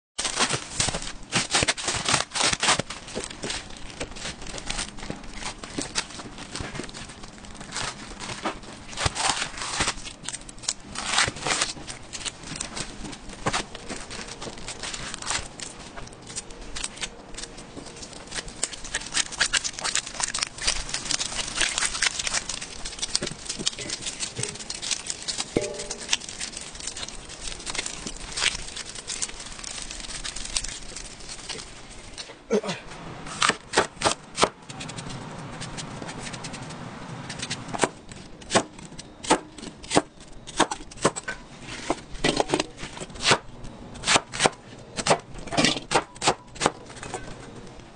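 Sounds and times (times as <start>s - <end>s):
plastic wrap crinkling: 0.2s - 32.3s.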